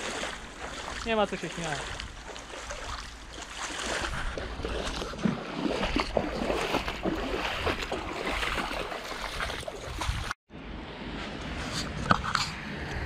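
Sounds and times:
footsteps splashing through water: 0.0s - 10.4s
wind rumble on microphone: 1.8s - 10.4s.

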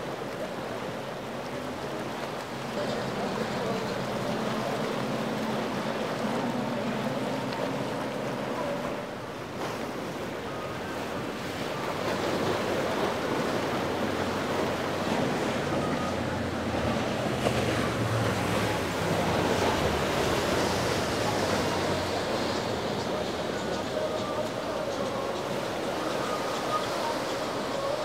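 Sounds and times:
boat engines running: 0.0s - 28.0s
water rushing: 0.0s - 28.0s
yacht spray and wake rushing: 0.0s - 28.0s.

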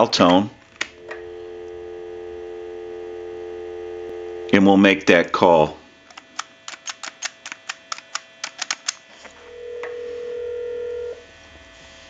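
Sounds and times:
telephone ringback tone: 0.9s - 4.6s, 9.4s - 11.2s.

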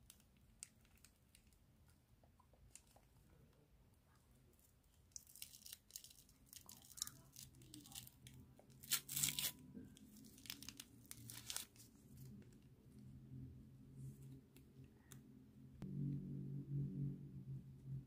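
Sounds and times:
faint low hum: 0.0s - 18.0s
wrapper being torn open: 5.1s - 12.3s.

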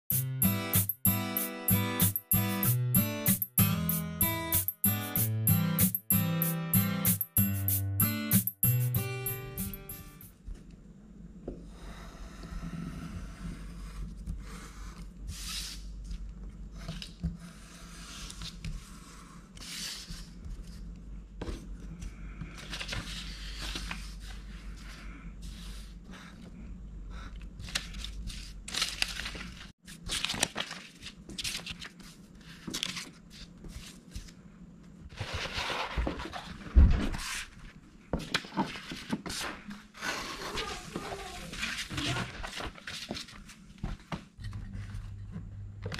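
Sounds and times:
paper rustling: 27.6s - 34.4s, 35.1s - 39.8s, 40.4s - 44.1s.

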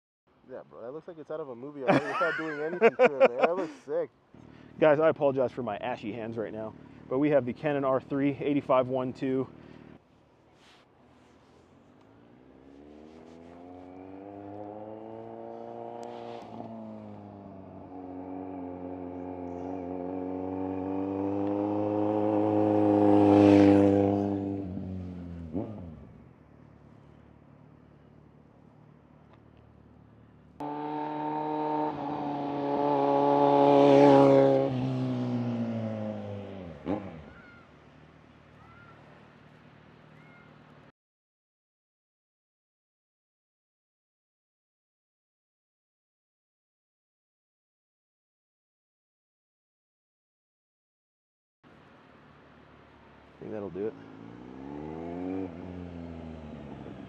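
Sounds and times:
motorcycle passing by: 1.9s - 3.8s, 4.4s - 10.0s, 11.2s - 40.5s, 53.0s - 57.0s.

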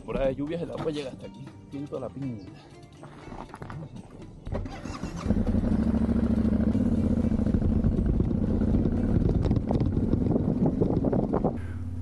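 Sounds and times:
motorcycle engine pulling away: 4.5s - 12.0s.

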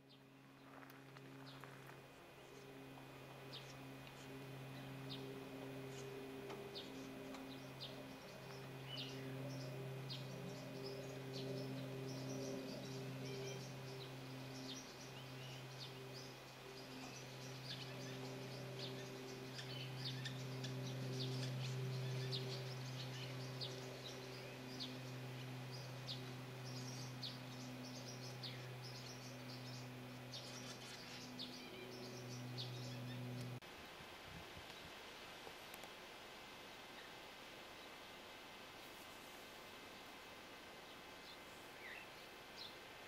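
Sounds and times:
low hum: 0.0s - 33.6s
swallows twittering: 2.5s - 33.6s.

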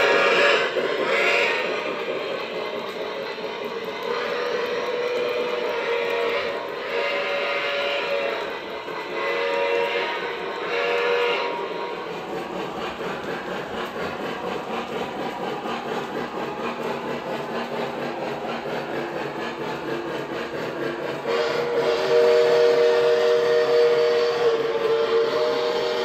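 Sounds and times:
train horn chord: 0.0s - 1.8s, 4.0s - 11.7s, 21.2s - 26.0s
model train rumble and clicking: 0.0s - 26.0s.

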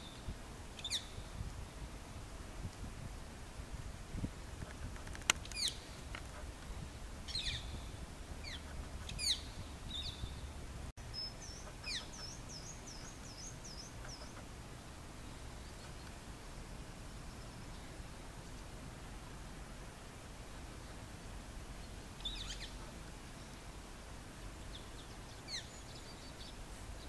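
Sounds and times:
parakeets calling: 8.4s - 10.4s, 11.2s - 14.5s, 22.2s - 23.0s.

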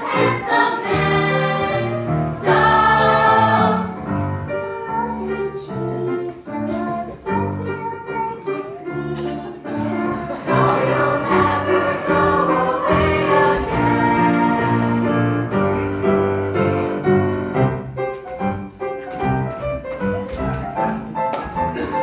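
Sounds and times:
youth choir singing: 0.0s - 5.7s, 9.7s - 15.5s
instrumental accompaniment: 0.0s - 22.0s.

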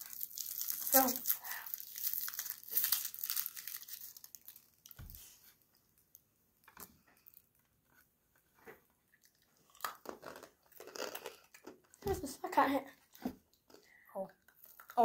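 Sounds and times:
candy wrapper crinkling: 0.0s - 5.4s, 9.3s - 12.3s, 14.4s - 15.0s
wrapper rustling: 0.0s - 5.4s.

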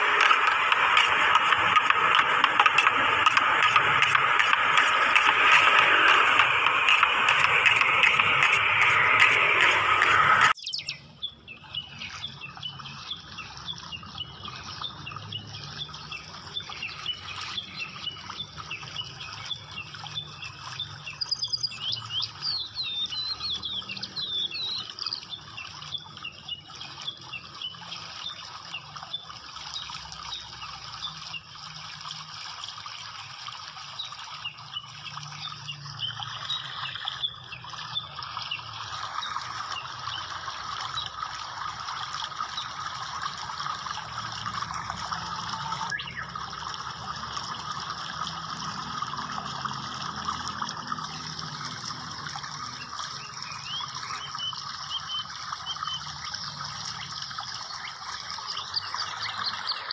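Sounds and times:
small birds chirping: 0.0s - 31.5s, 45.2s - 46.4s, 52.4s - 56.1s.

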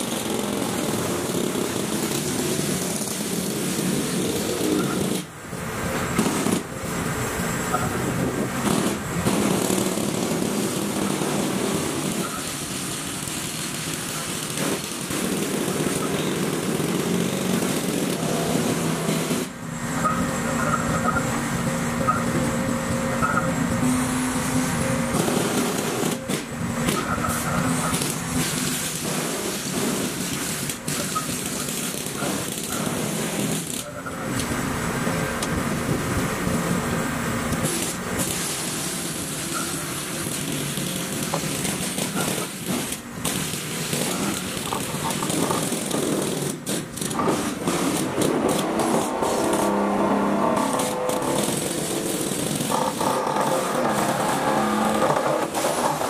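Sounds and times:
excavator engine running: 0.0s - 56.0s
vibratory pile hammer: 7.8s - 21.3s, 21.9s - 33.9s, 37.6s - 56.0s.

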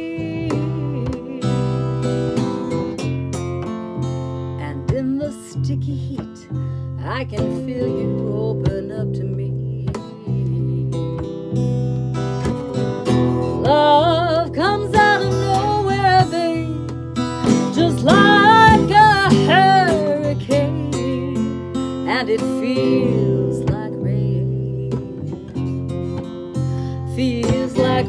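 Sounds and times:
woman singing with vibrato: 0.0s - 2.0s, 4.5s - 11.4s, 13.4s - 16.9s, 17.5s - 26.0s, 26.8s - 28.0s
acoustic bass guitar: 0.0s - 28.0s
strummed acoustic guitar: 0.0s - 28.0s.

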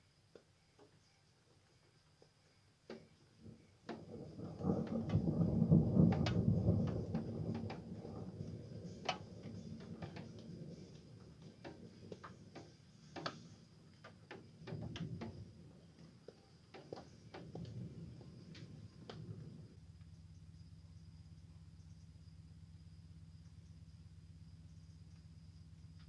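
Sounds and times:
rolling thunder: 3.4s - 19.8s.

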